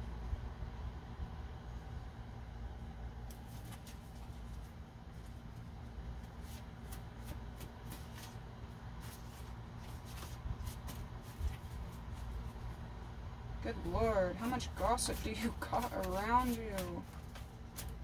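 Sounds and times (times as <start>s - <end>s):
steady low hum: 0.0s - 18.0s
cards shuffled by hand: 3.3s - 5.4s, 6.2s - 12.6s, 15.1s - 18.0s.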